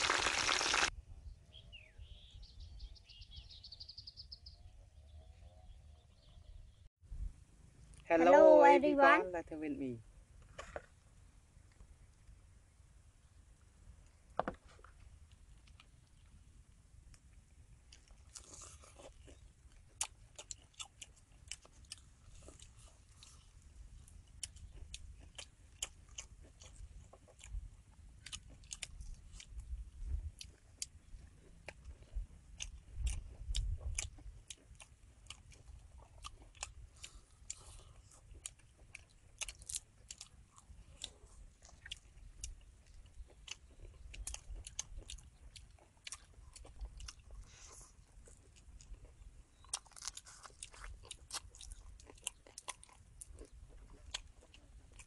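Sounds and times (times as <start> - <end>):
crunching fried shrimp: 0.0 - 0.9, 17.1 - 55.0.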